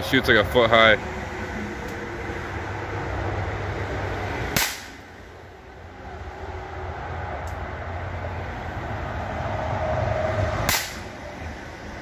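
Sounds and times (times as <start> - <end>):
low mechanical rumble: 0.0 - 12.0
revolver gunshot crack: 4.6 - 5.0, 10.7 - 11.1.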